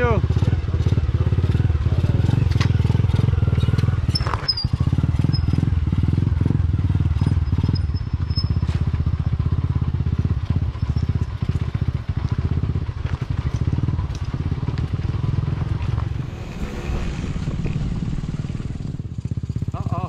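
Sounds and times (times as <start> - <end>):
small motorcycle engine putter: 3.5 - 5.6.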